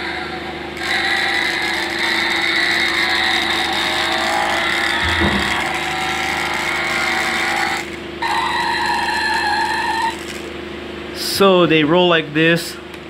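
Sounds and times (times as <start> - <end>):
toy car engine sound effect: 0.1 - 10.5
low bump: 5.0 - 5.8.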